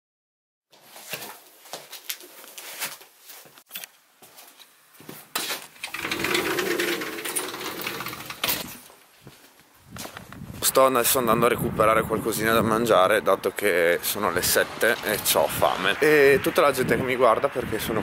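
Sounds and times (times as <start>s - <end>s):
door clicks and knocks: 5.9s - 8.8s
sliding door rumbling on track: 5.9s - 8.8s.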